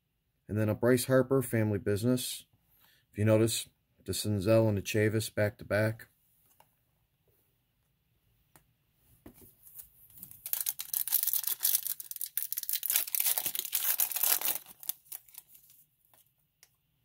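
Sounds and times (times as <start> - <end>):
foil wrapper tearing and crinkling: 10.2 - 15.8.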